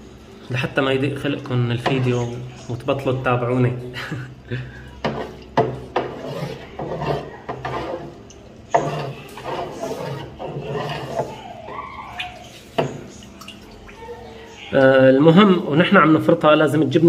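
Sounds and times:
metal tool scraping cheese curd: 0:05.0 - 0:13.2.

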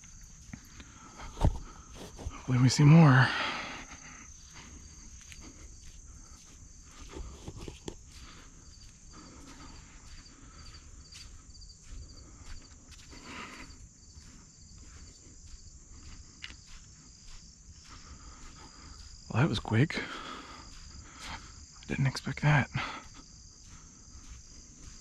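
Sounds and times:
insects chirping: 0:00.0 - 0:25.0
footsteps rustling in brush: 0:01.2 - 0:02.6, 0:04.4 - 0:19.3, 0:23.2 - 0:25.0.

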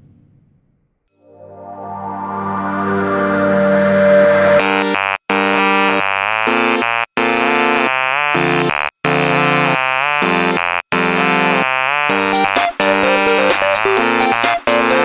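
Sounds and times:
buzzy synthesizer electronic music: 0:01.3 - 0:05.2, 0:12.1 - 0:15.0.

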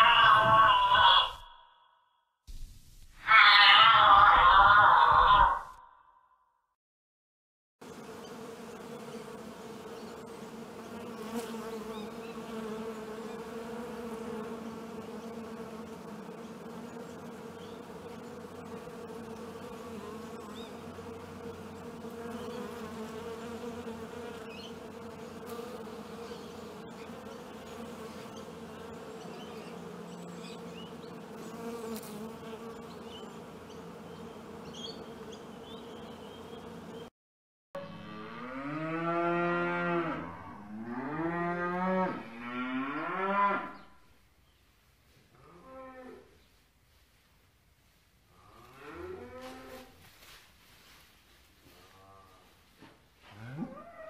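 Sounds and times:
honeybee buzzing: 0:07.8 - 0:37.1.

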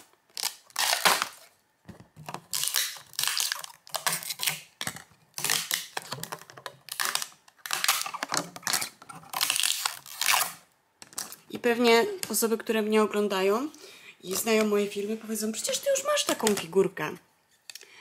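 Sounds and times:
packaging rubbing and rustling: 0:00.0 - 0:01.6, 0:02.2 - 0:11.3.

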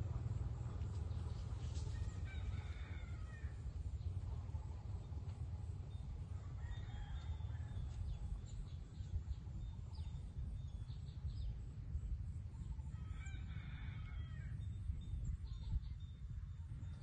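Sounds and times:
steady low rumble: 0:00.0 - 0:17.0
rooster crowing: 0:01.9 - 0:03.6, 0:06.4 - 0:07.9, 0:12.9 - 0:14.6.

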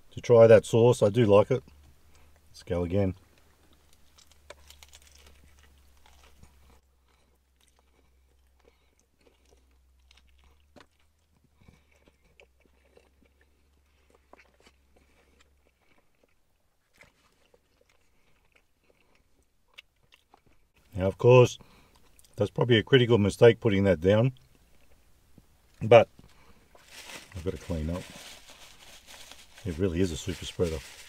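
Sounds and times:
person chewing crispy food: 0:03.2 - 0:20.8, 0:21.6 - 0:22.4, 0:26.2 - 0:31.0.

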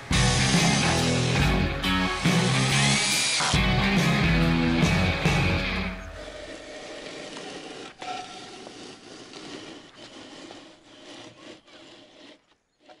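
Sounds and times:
scraping on concrete blocks: 0:06.2 - 0:13.0.

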